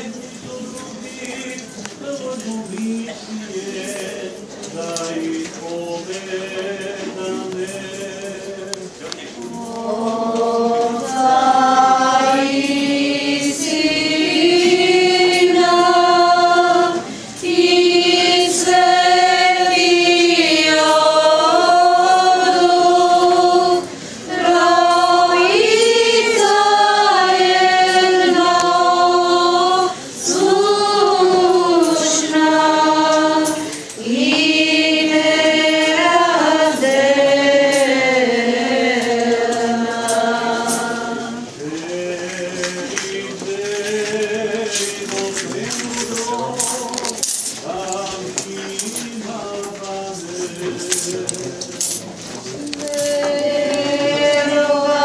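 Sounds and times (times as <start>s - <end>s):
choir chanting long held notes: 9.4s - 47.0s, 52.5s - 55.0s
singers breathing: 17.0s - 17.4s.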